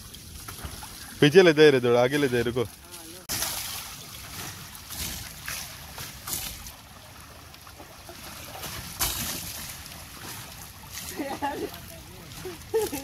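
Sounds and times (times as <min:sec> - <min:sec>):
sharp water splash: 0:00.0 - 0:13.0
water trickling and splashing: 0:00.0 - 0:13.0.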